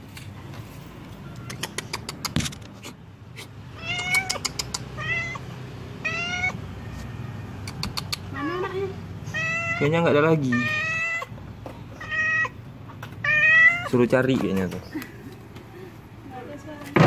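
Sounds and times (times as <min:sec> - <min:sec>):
cat meowing: 0:03.7 - 0:14.0.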